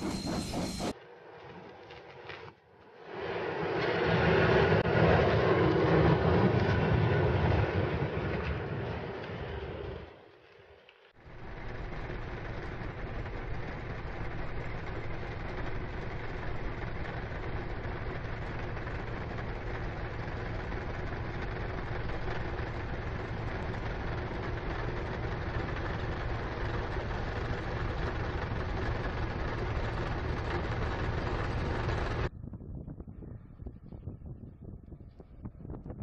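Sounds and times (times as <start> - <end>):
heavy engine humming: 0.0 - 4.9, 11.2 - 32.3
constant rushing noise: 0.0 - 32.3.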